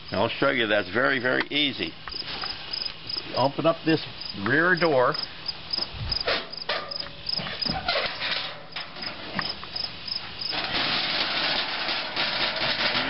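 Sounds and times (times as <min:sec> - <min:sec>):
cricket chirping: 0:02.1 - 0:03.3, 0:04.1 - 0:07.9, 0:08.7 - 0:10.6.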